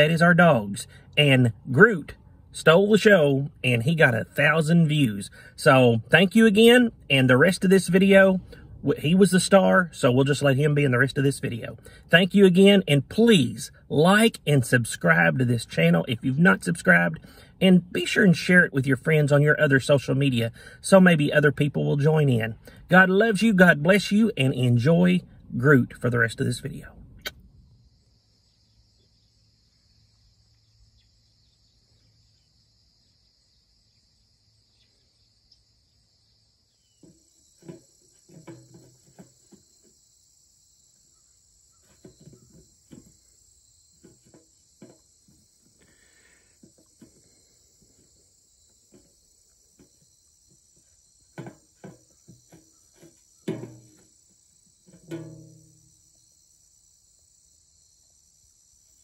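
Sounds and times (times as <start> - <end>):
insects chorus: 0.0 - 59.0
ball knocking in tray: 37.0 - 39.9, 44.0 - 45.4, 51.3 - 54.1, 54.8 - 55.9.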